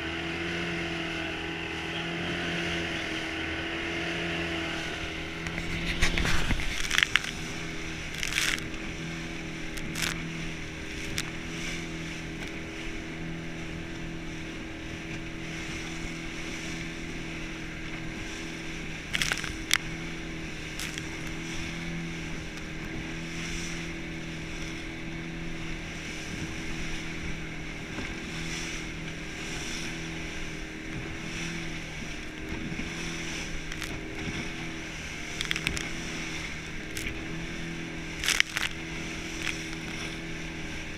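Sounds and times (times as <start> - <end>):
hull slapping waves: 0.0 - 40.9
motorboat engine running: 0.0 - 40.9
wind: 0.0 - 40.9
rushing spray: 4.8 - 10.7.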